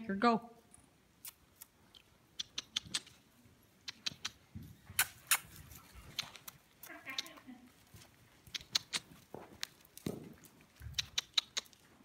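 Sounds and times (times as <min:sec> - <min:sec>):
mouth clicks urging horse: 0:01.2 - 0:07.5, 0:08.4 - 0:09.3, 0:10.8 - 0:12.0.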